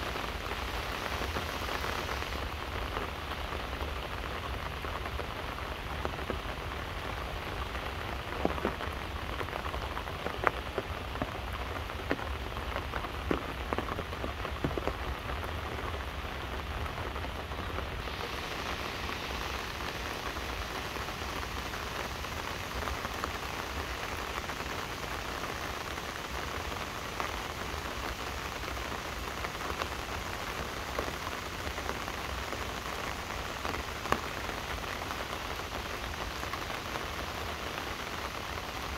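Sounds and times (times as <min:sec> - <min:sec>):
rain falling under trees: 0:00.0 - 0:38.9.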